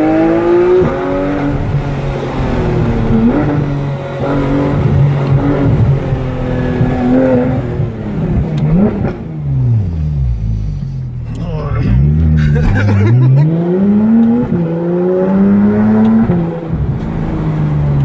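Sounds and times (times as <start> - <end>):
car engine from inside cabin: 0.0 - 18.0.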